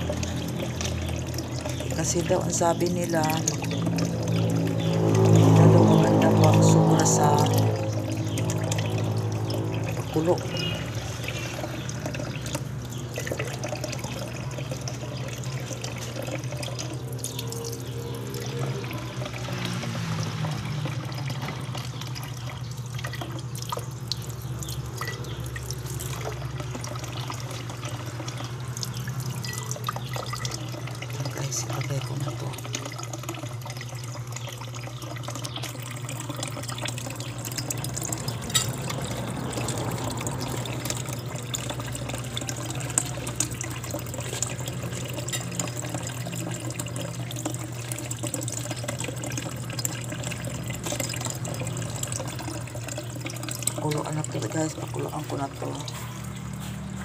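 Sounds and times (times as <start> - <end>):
steady low hum: 0.0 - 19.5
tap water splashing into glass: 28.8 - 34.6, 35.2 - 54.2.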